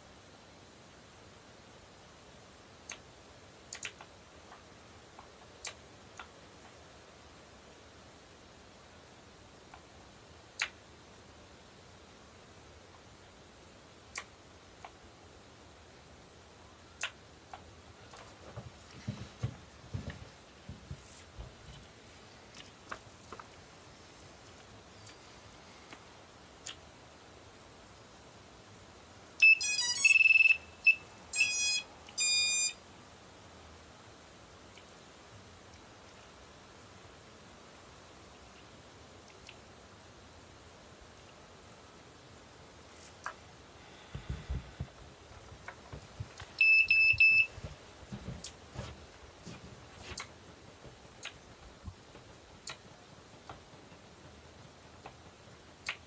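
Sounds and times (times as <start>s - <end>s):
low hiss: 0.0s - 56.0s
faint irregular clicks: 2.8s - 3.1s, 3.7s - 6.8s, 10.5s - 10.8s, 14.1s - 15.0s, 34.7s - 35.0s, 38.3s - 39.7s, 50.1s - 56.0s
electronic beeps: 29.4s - 32.8s, 46.6s - 47.5s.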